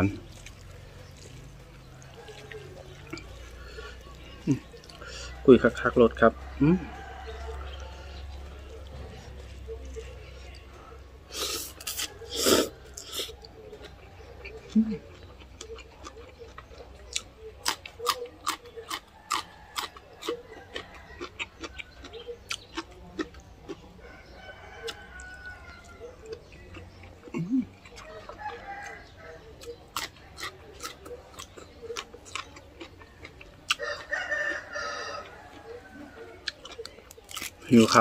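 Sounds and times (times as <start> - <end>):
person chewing noodles: 0.0 - 6.0, 6.9 - 38.0
rooster crowing: 2.0 - 3.1, 6.2 - 9.3, 19.2 - 22.1, 24.0 - 26.4, 28.0 - 29.7, 33.7 - 36.5.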